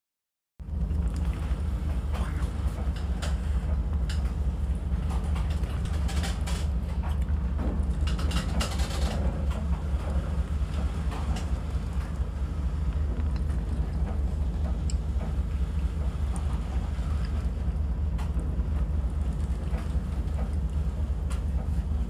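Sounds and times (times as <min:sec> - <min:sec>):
low rumble: 0:00.6 - 0:22.0.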